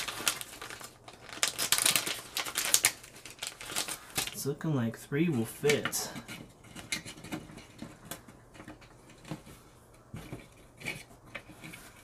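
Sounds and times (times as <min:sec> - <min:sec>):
hands handling plastic housing: 0:05.5 - 0:12.0.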